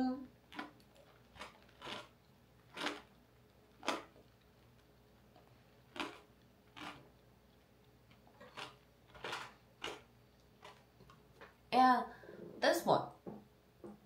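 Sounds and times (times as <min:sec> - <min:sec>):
crunching hard candy: 0:00.4 - 0:07.3, 0:08.1 - 0:11.1.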